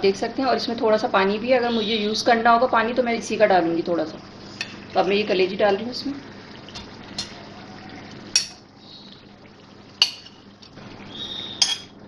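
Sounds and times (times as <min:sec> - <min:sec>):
steel spoon clinking against plate: 0:11.6 - 0:11.9.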